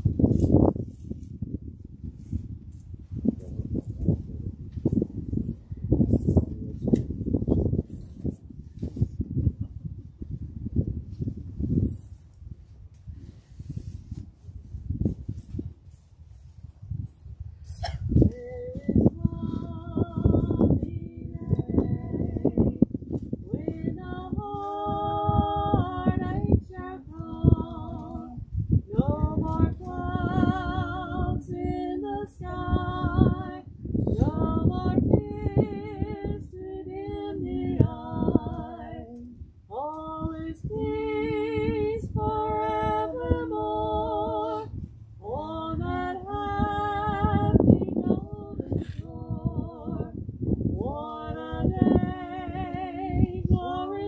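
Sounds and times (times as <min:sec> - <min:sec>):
woman singing with vibrato: 0:18.2 - 0:50.2, 0:50.8 - 0:54.0.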